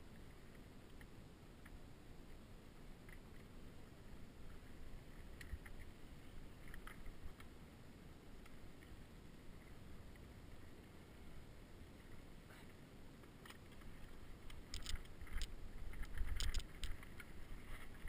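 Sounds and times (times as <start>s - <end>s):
bike clicks and rattles: 13.4s - 18.0s.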